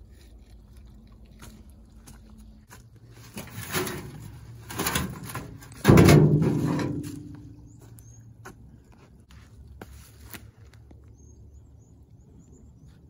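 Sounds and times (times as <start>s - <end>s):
rocks scraping in plastic wheelbarrow: 3.0s - 7.4s.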